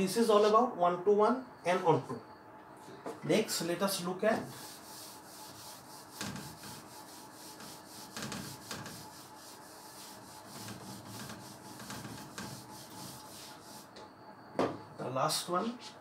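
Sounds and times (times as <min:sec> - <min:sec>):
eraser rubbing on whiteboard: 0:04.4 - 0:13.9.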